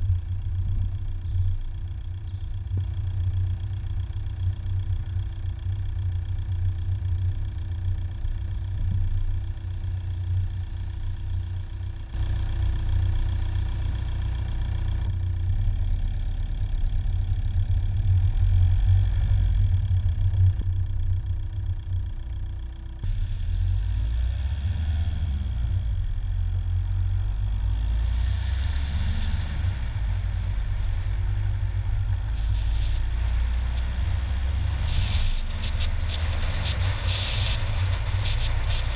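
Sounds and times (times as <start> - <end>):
faint whining tones: 0.0 - 24.1
car engine and road noise: 0.0 - 38.9.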